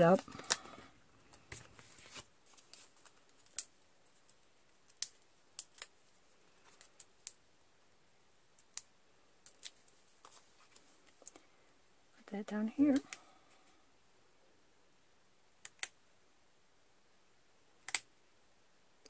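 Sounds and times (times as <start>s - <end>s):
paper clicks and crinkles: 0.3s - 7.4s.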